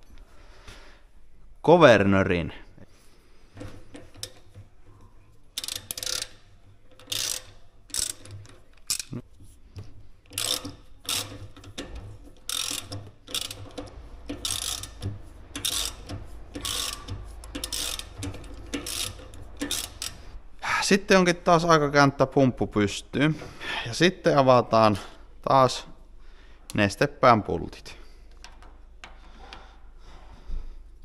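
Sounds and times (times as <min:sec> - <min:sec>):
hand ratchet clicking: 0:03.6 - 0:04.6, 0:05.5 - 0:20.4.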